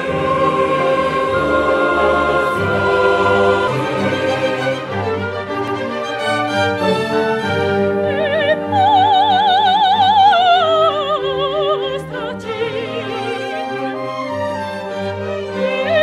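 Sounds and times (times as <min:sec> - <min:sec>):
orchestral accompaniment: 0:00.0 - 0:16.0
soprano singing with vibrato: 0:08.0 - 0:13.9, 0:15.6 - 0:16.0.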